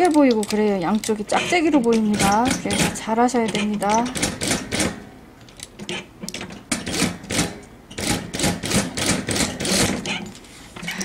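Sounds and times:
sewing machine stitching: 6.9 - 10.2.

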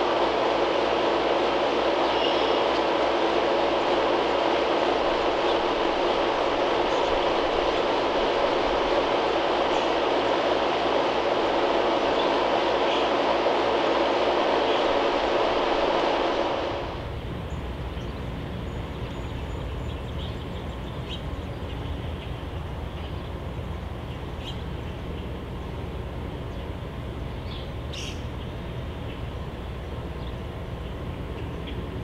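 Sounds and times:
bird chirps: 27.4 - 28.5.

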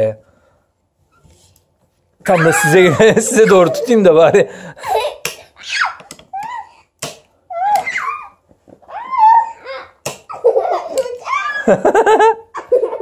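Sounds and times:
children laughing and squealing: 2.2 - 6.9, 7.5 - 13.0.

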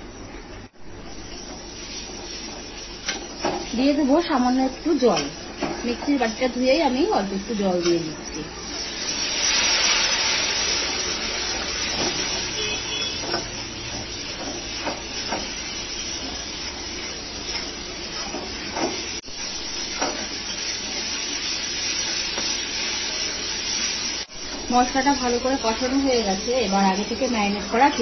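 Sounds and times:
masala sizzling in oil: 0.0 - 28.0.

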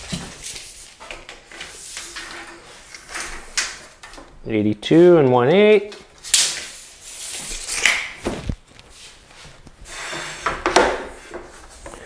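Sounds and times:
wooden board scraping: 9.8 - 12.0.

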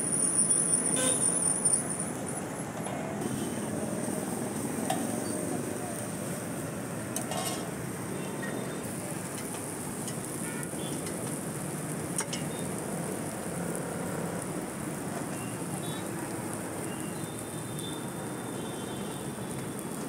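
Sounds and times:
bread sizzling on griddle: 0.0 - 20.0
street noise: 0.0 - 20.0
metal spatula clinking on griddle: 7.2 - 7.7, 12.2 - 12.5.

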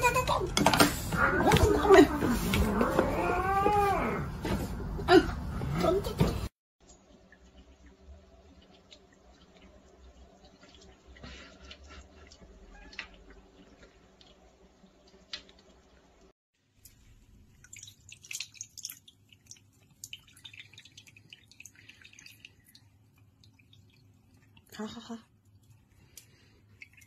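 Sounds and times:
water drips: 6.8 - 27.0
tap water running into basin: 15.0 - 27.0.

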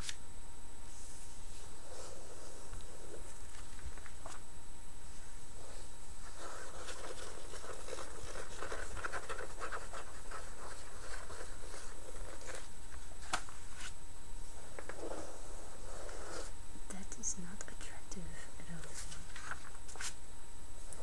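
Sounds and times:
fingernails scratching magazine pages: 6.2 - 14.0
page turning: 6.4 - 14.0, 18.9 - 20.2.

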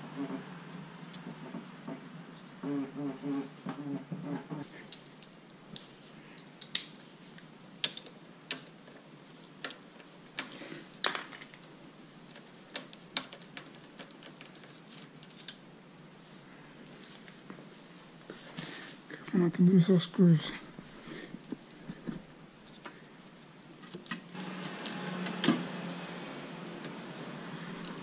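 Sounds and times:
small parts clicking and tapping: 4.8 - 15.7.

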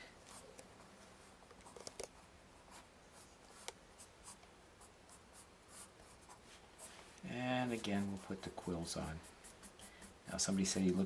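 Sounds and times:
pencil sketching on paper: 2.7 - 11.0.

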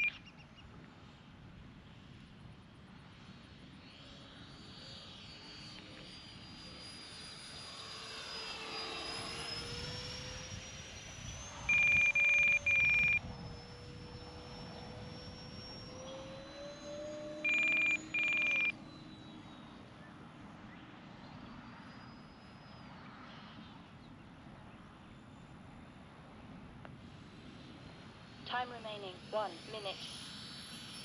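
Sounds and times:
rc jet ducted fans whining: 0.0 - 31.0
short loud electronic beeps: 11.7 - 13.2, 17.5 - 18.7.

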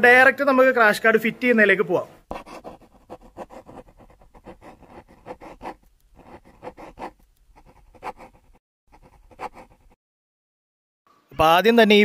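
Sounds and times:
pencil scratching on paper: 2.2 - 10.0.

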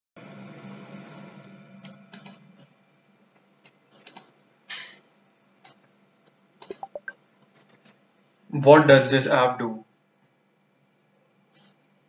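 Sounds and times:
mouse and keyboard clicks: 6.6 - 7.1.

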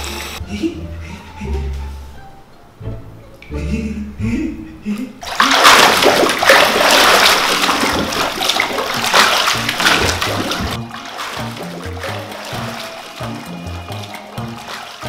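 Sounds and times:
background music: 0.0 - 5.2, 8.4 - 15.0
water splashing in bathtub: 5.2 - 15.0.

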